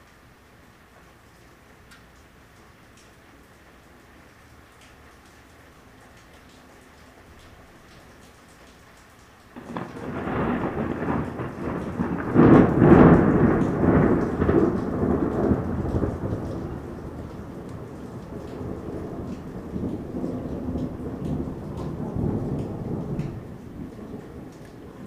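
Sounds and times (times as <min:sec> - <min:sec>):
rain falling: 0:00.0 - 0:25.0
thunder rumbling: 0:09.6 - 0:25.0.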